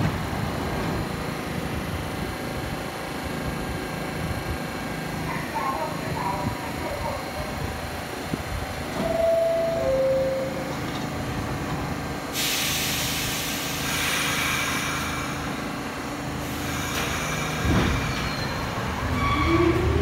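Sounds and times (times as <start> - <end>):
compressed air hiss: 12.3 - 15.6.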